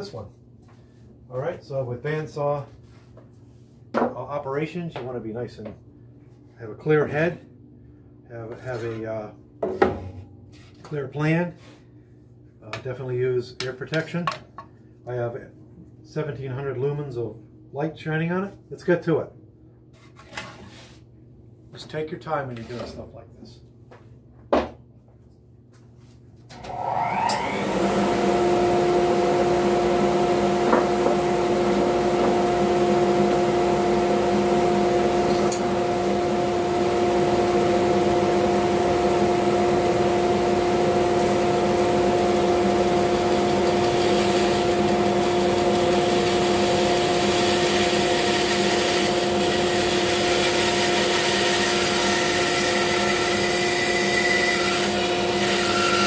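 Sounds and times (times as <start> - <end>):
bandsaw cutting wood: 26.6 - 56.0.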